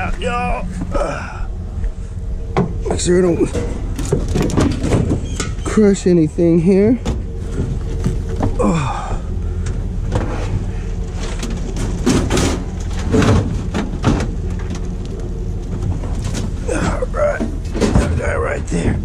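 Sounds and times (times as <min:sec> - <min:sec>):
steady low hum: 0:00.0 - 0:19.0
plastic and metal items knocking and scraping: 0:03.5 - 0:05.6, 0:11.2 - 0:14.8.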